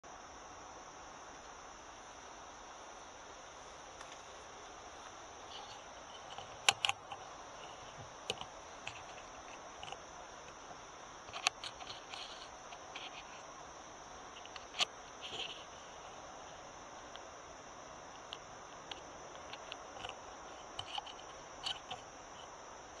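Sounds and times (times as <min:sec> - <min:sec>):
night insects chorus: 0:00.0 - 0:23.0
sharp clicks: 0:05.5 - 0:07.2.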